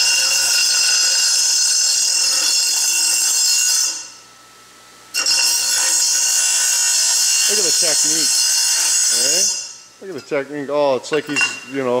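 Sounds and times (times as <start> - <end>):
bench grinder grinding metal: 0.0 - 4.2, 5.2 - 9.9.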